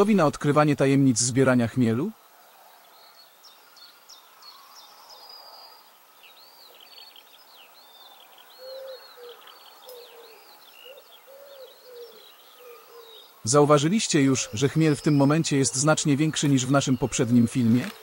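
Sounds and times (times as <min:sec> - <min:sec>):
songbirds twittering: 0:00.0 - 0:18.0
dove cooing: 0:08.6 - 0:13.3.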